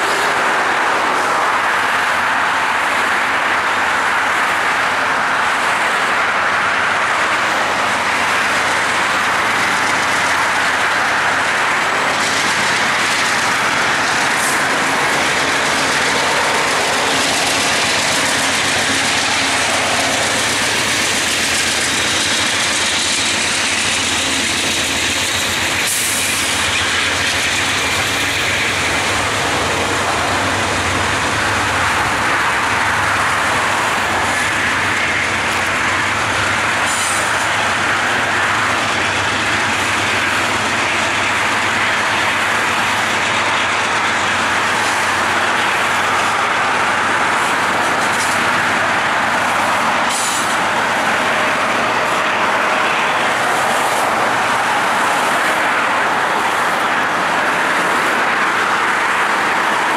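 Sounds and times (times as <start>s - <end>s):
train wheels rumbling on rail: 0.0s - 59.9s.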